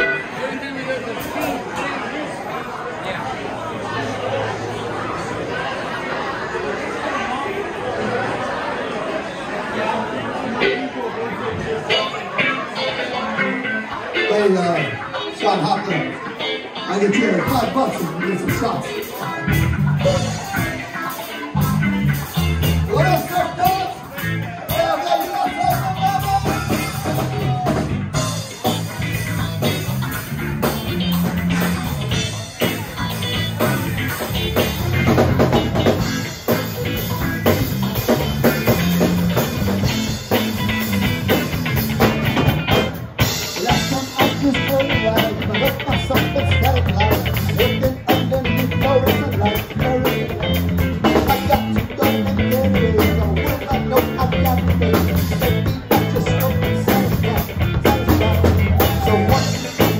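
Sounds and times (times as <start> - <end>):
live rock band playing: 0.0 - 2.1, 10.1 - 59.9
bass line: 17.2 - 59.9
drum beat: 25.7 - 59.9.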